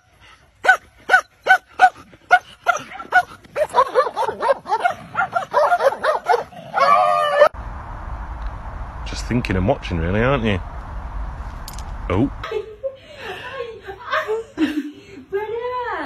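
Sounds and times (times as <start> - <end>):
dog barking high-pitched: 0.6 - 7.5.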